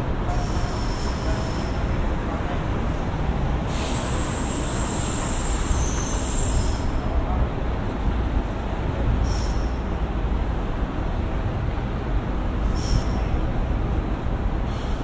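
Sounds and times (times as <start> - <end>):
traffic rumble: 0.0 - 15.0
short hisses: 3.7 - 6.8.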